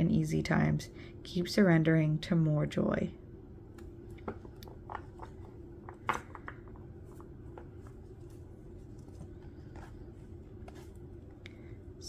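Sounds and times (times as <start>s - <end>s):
low steady hum: 0.0s - 12.0s
cards tapping and rustling: 4.2s - 11.0s.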